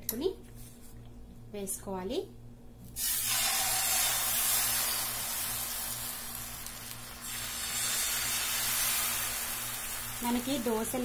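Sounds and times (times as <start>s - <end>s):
batter sizzling on a hot pan: 3.0s - 11.0s.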